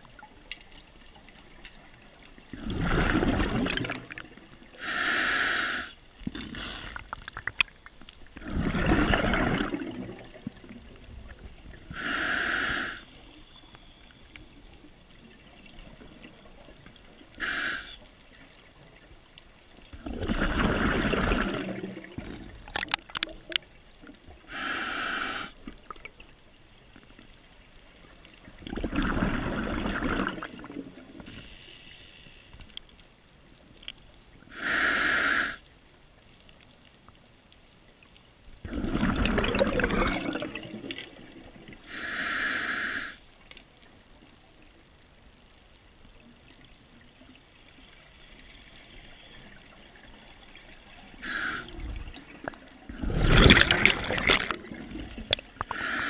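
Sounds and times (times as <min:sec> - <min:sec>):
gurgling exhaled bubbles: 0:02.5 - 0:04.6, 0:08.4 - 0:13.0, 0:19.9 - 0:23.6, 0:28.5 - 0:31.3, 0:38.6 - 0:41.9, 0:49.8 - 0:56.0
regulator inhalation hiss: 0:04.8 - 0:07.0, 0:11.9 - 0:14.1, 0:17.3 - 0:18.1, 0:24.5 - 0:25.6, 0:31.2 - 0:32.7, 0:34.5 - 0:35.7, 0:41.8 - 0:43.4, 0:51.1 - 0:51.9, 0:55.6 - 0:56.0.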